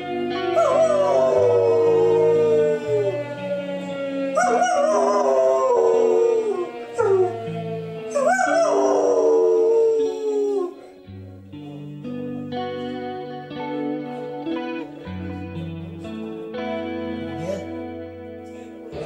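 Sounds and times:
music of long held notes: 0.0s - 19.0s
dog howling: 0.1s - 12.2s.

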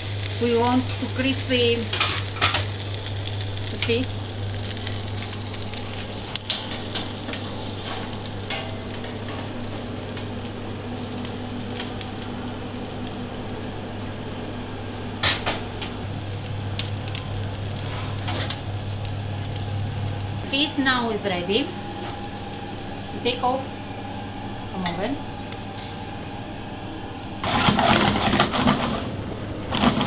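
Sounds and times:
fish sizzling on a grate: 0.0s - 23.7s
steady low hum: 0.0s - 30.0s
small crackles: 15.9s - 20.6s.

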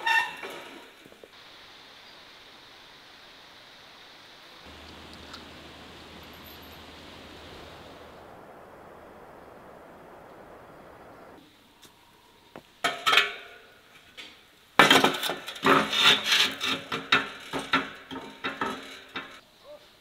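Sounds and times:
soft steady hiss: 0.0s - 20.0s
metal basket scraping and clanking: 14.9s - 19.4s.

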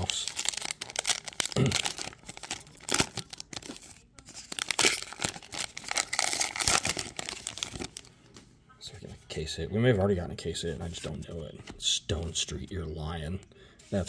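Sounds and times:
foil wrapper tearing and crinkling: 0.0s - 8.1s.

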